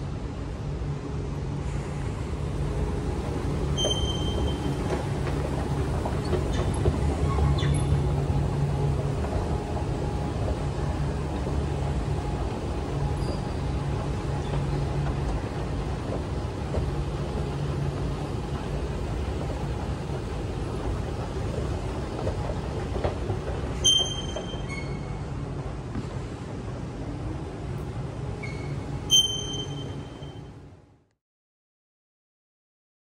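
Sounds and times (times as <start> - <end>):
machinery hum and rumble: 0.0 - 31.1
short high electronic beep: 29.1 - 30.4.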